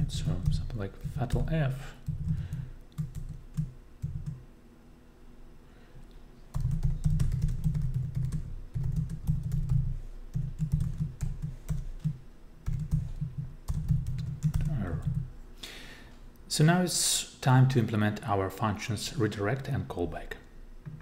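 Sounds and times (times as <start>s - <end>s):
laptop keyboard typing: 0.1s - 4.4s, 6.5s - 15.3s.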